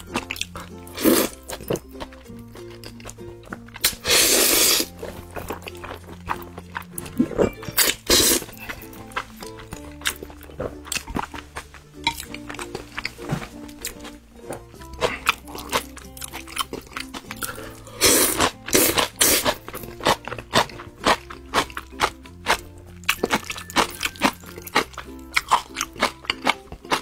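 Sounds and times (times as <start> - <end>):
background music: 0.0 - 27.0
wet chewing: 0.0 - 27.0
noodle slurp: 0.9 - 1.4, 3.8 - 5.0, 7.2 - 8.6, 17.4 - 20.2.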